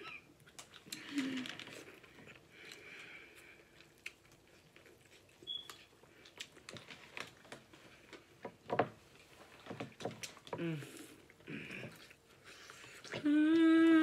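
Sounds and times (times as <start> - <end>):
corn being bitten and chewed: 0.4 - 7.4.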